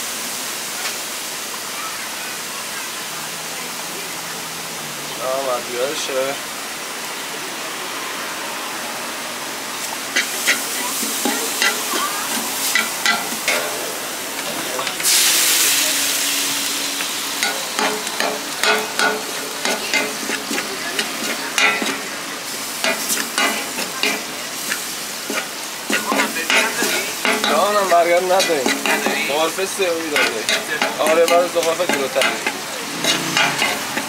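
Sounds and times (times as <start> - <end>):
meat sizzling in a hot pan: 9.7 - 34.0
utensil clicking against pan: 17.4 - 22.0, 28.3 - 29.3, 30.2 - 34.0.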